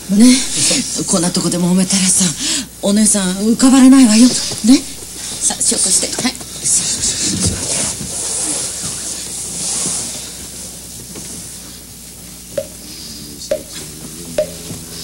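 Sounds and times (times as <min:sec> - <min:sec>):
hiss: 0:07.2 - 0:10.6.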